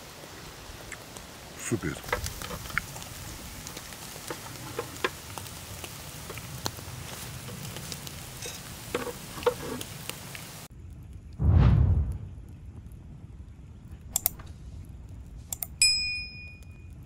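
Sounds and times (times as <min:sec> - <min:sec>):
skewers sizzling over charcoal: 0:00.0 - 0:10.7, 0:13.9 - 0:17.0
small crackles and pops: 0:00.0 - 0:11.4, 0:12.0 - 0:17.0
loud deep boom: 0:11.4 - 0:12.6.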